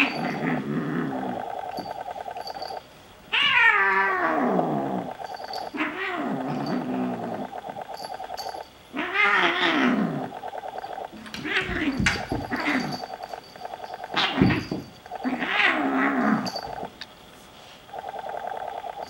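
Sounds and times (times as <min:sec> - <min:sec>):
kitten growling: 0:00.0 - 0:02.5, 0:03.3 - 0:08.0, 0:08.9 - 0:13.1, 0:14.1 - 0:16.9
kittens yowling: 0:03.3 - 0:07.5, 0:09.0 - 0:10.4, 0:14.1 - 0:16.8.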